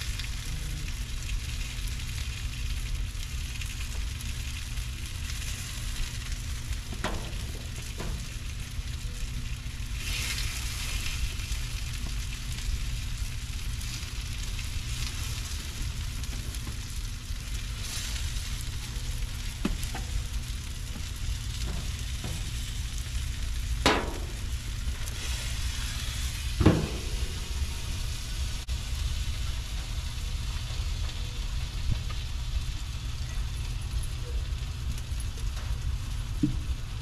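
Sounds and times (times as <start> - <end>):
chicken sizzling on a grill: 0.0 - 37.0
metal clanks: 23.8 - 24.5, 26.6 - 27.7.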